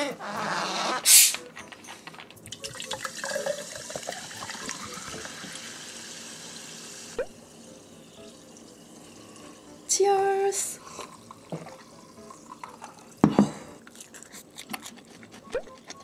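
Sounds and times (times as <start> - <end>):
bottle opening hiss: 1.1 - 1.4
sparkling water pouring into glass: 2.4 - 13.2
fizzing: 2.5 - 9.9.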